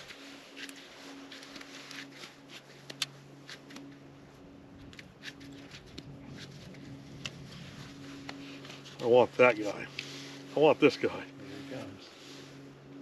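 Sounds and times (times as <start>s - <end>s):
ticks and clicks of fishing gear: 0.0s - 9.0s, 9.8s - 10.5s.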